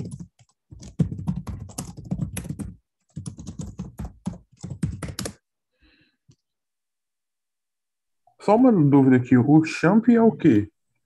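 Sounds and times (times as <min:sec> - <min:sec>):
fast typing on keyboard: 0:00.0 - 0:05.4.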